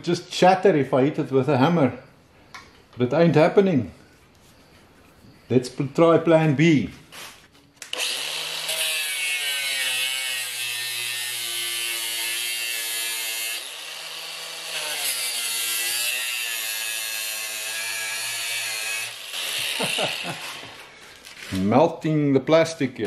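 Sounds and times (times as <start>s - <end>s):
angle grinder cutting plastic: 7.8s - 21.5s.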